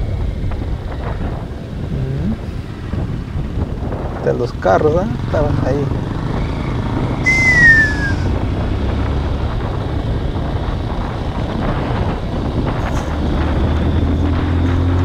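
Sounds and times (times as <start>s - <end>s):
wind buffeting microphone: 0.0s - 15.0s
whistle-like tone sliding down: 7.2s - 8.3s.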